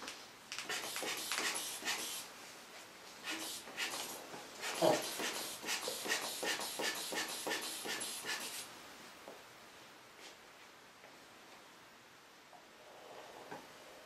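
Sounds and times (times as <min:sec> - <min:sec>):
rhythmic puffs of air: 0:00.5 - 0:02.3, 0:03.2 - 0:08.7.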